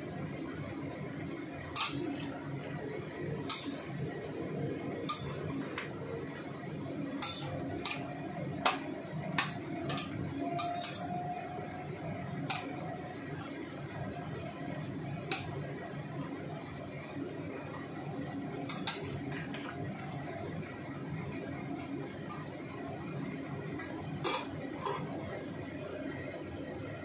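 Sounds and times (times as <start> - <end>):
steady background noise: 0.0 - 27.0
metal spatula scraping a wok: 1.6 - 2.4, 3.3 - 5.8, 7.1 - 13.6, 15.2 - 15.6, 18.5 - 19.8.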